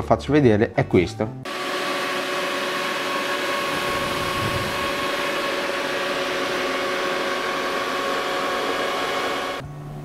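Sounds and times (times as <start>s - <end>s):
cooling fans rushing: 1.5s - 10.0s
steady electronic whine: 3.3s - 10.0s.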